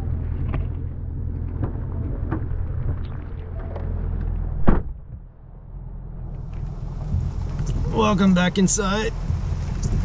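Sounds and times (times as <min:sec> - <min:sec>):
car engine idling: 0:00.0 - 0:10.0
car door shutting: 0:04.6 - 0:05.2.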